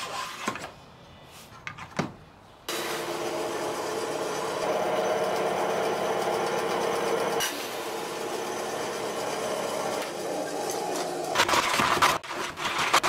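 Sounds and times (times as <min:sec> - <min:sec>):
bandsaw cutting wood: 0:02.7 - 0:13.0.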